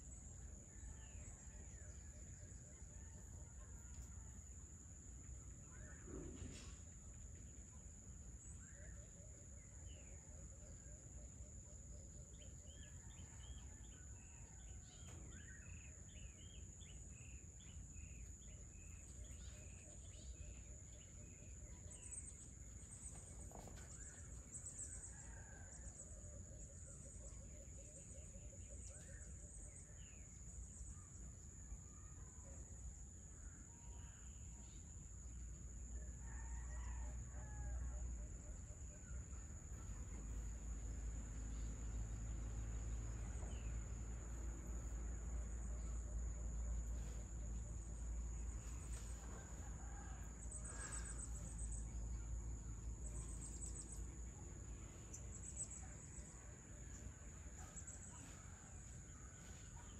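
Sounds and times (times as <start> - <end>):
rooster crowing: 36.2 - 37.9, 49.4 - 51.2.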